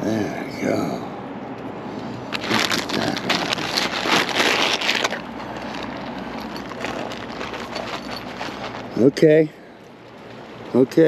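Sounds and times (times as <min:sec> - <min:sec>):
rustling of fishing tackle: 0:02.0 - 0:10.8.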